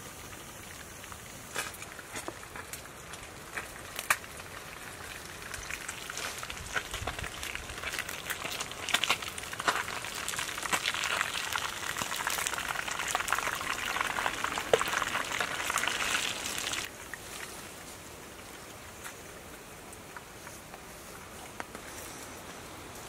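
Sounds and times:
oil sizzling and popping: 0:00.0 - 0:17.2
steady hiss: 0:00.0 - 0:23.0.

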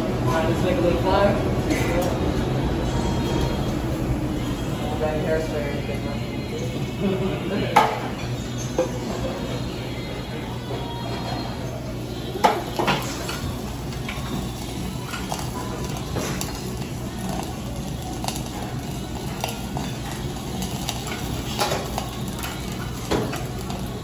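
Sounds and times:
metal utensils clinking on griddle: 0:12.4 - 0:23.9.

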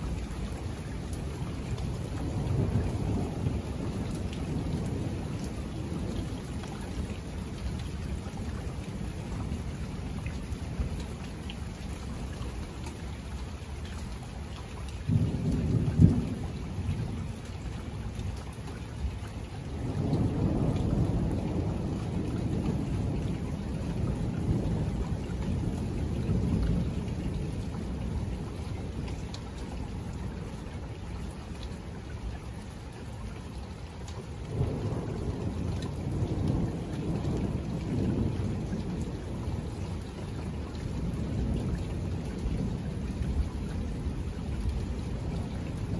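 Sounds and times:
steady rain: 0:00.0 - 0:45.9
rolling thunder: 0:00.1 - 0:11.2, 0:15.0 - 0:17.4, 0:19.6 - 0:30.6, 0:34.4 - 0:45.9.

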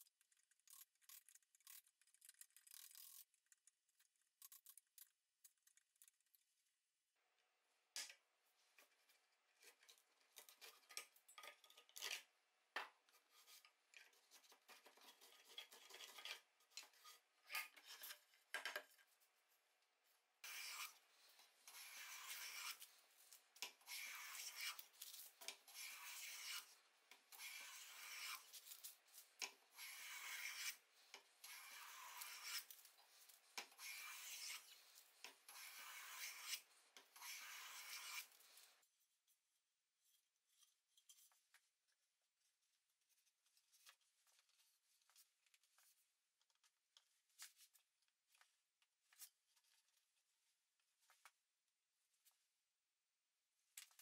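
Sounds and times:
hand tool scraping wooden rail: 0:29.8 - 0:32.7.

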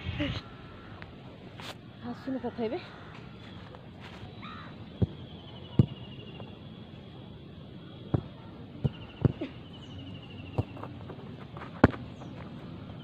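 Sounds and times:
football kicked thuds: 0:05.0 - 0:06.0, 0:08.1 - 0:09.5, 0:10.5 - 0:11.0, 0:11.6 - 0:12.4.

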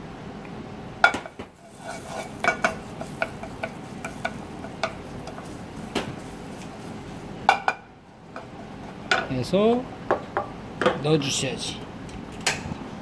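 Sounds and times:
stove hiss: 0:01.1 - 0:09.1
wooden spatula knocking on a pan: 0:02.4 - 0:06.8.

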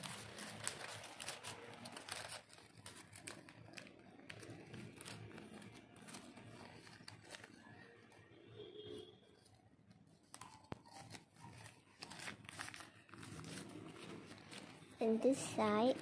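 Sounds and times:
paper rustling and crinkling: 0:00.0 - 0:08.3, 0:09.3 - 0:16.0.

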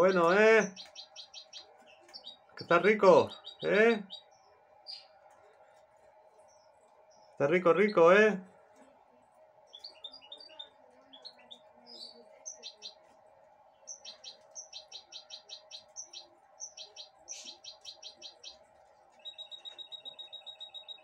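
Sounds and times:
bird chirping: 0:00.0 - 0:08.4, 0:09.6 - 0:13.1, 0:13.8 - 0:21.0.

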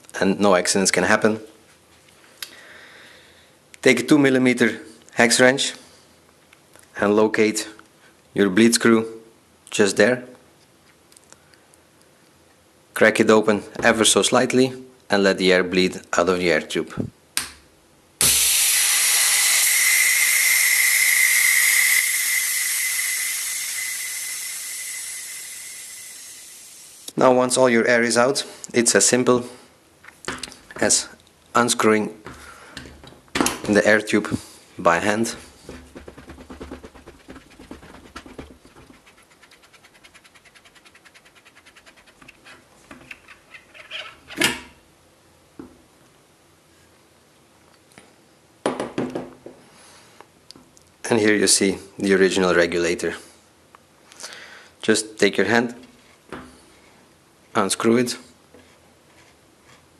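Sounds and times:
high-pressure air hissing with whistle: 0:18.2 - 0:27.1.

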